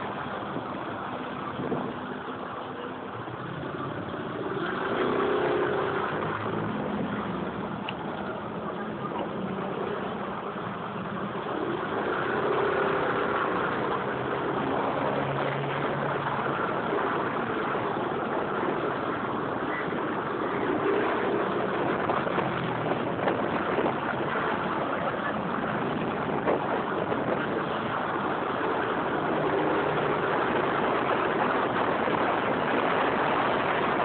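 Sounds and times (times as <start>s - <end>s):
traffic engine and road noise: 0.0s - 34.0s
scooter engine revving: 3.3s - 34.0s.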